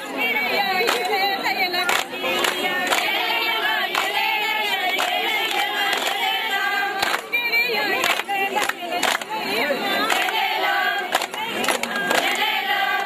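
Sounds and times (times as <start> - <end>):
women singing in chorus: 0.0 - 13.0
sharp hand claps: 0.7 - 1.2, 1.8 - 3.2, 3.8 - 7.4, 8.0 - 9.4, 10.0 - 12.5.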